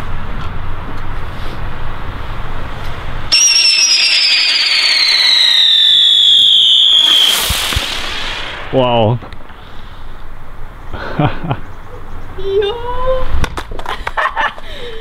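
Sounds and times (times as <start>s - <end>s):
spinner firework whistle: 3.3s - 8.9s
fuse hissing: 3.3s - 9.9s
firework rushing hiss: 3.3s - 10.0s.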